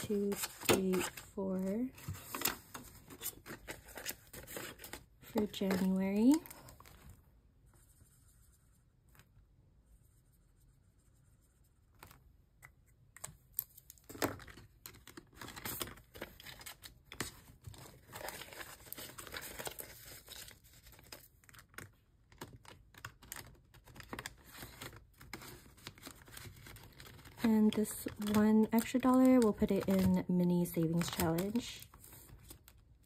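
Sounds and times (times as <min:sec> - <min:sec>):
paper bills rustling: 0:15.1 - 0:32.9.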